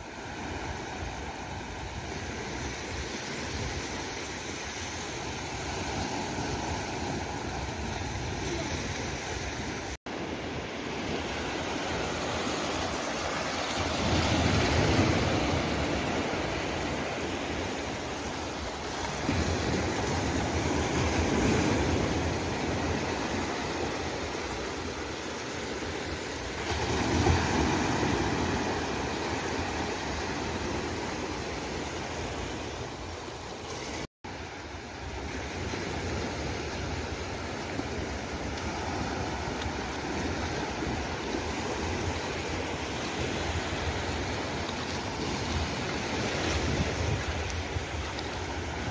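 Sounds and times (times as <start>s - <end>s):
waves breaking on beach: 0.0s - 48.9s.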